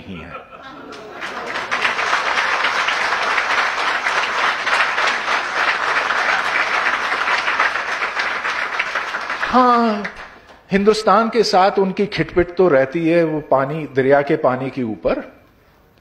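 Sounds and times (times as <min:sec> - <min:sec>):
audience applauding: 0:00.8 - 0:10.6.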